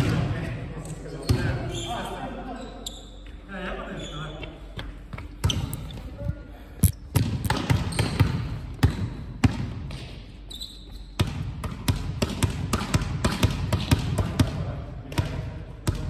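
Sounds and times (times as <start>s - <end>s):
shoe squeak: 1.2s - 3.3s, 3.9s - 4.7s, 5.3s - 6.2s, 7.8s - 8.3s, 10.4s - 11.2s
volleyballs smacking and bouncing: 6.8s - 10.5s, 11.2s - 16.0s.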